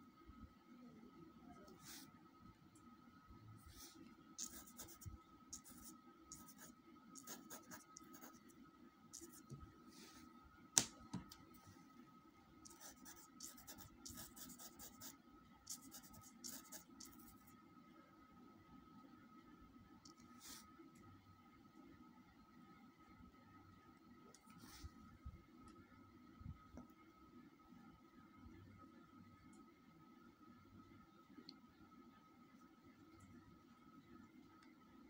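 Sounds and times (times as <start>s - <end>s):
pencil scratching on paper: 3.9s - 8.4s, 12.7s - 15.1s, 15.7s - 17.3s.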